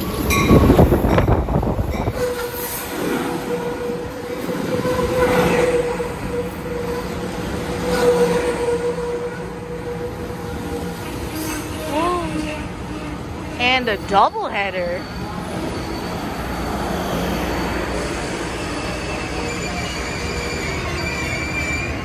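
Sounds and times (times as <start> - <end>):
high squeal of train wheels: 0.0 - 13.2, 14.8 - 22.0
train cars rushing past: 0.0 - 22.0.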